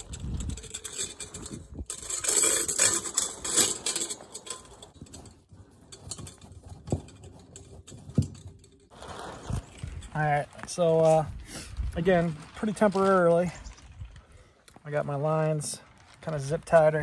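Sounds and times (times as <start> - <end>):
metal pipe scraping and clinking: 0.0 - 11.3.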